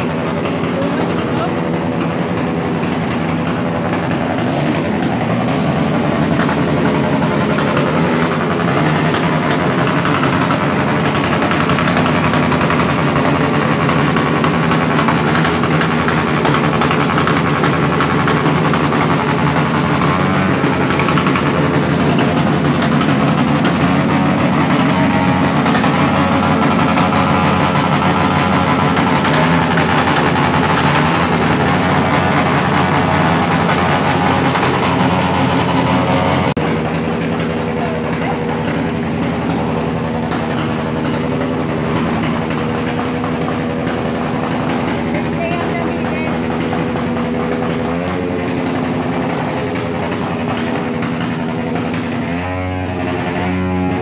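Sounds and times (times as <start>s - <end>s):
motorcycle engines revving: 0.0s - 54.0s.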